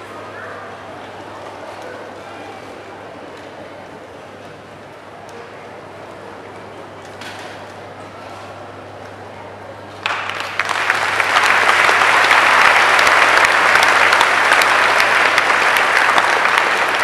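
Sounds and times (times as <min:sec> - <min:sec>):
audience applauding: 0:10.0 - 0:17.0.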